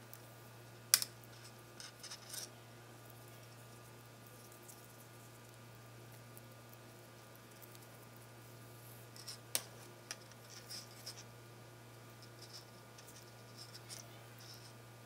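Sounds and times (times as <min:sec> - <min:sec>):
steady low hum: 0:00.0 - 0:15.0
cord rustling and scraping: 0:01.3 - 0:02.5, 0:09.2 - 0:11.3, 0:12.2 - 0:14.8.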